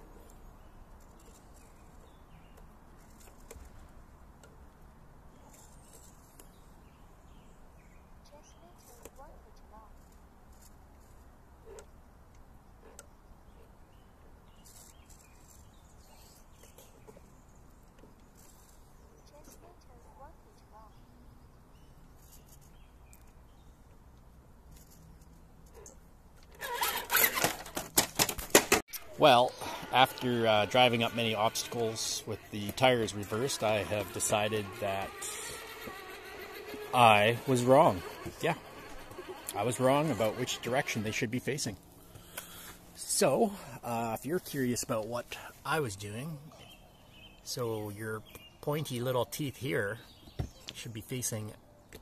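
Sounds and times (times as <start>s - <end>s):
rc car tires clicking on rock: 29.9s - 41.2s.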